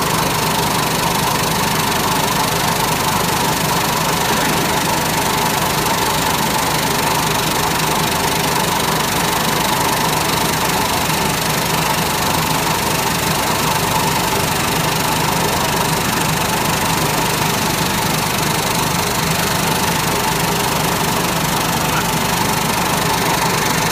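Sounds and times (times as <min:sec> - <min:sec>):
production line machinery hum: 0:00.0 - 0:18.6.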